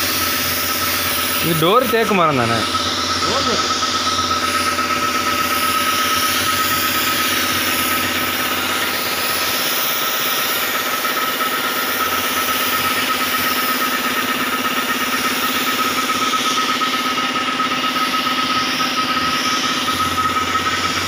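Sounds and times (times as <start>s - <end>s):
motor whining: 0.3s - 9.8s.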